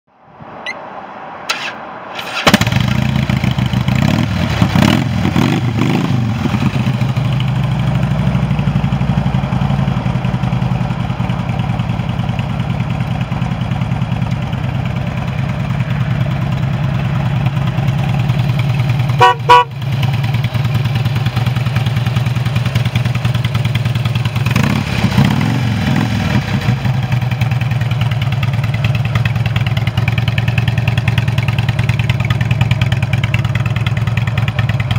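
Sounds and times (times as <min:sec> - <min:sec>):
motorcycle engine idling and revving: 0:01.4 - 0:34.9
motorcycle horn: 0:19.0 - 0:20.1.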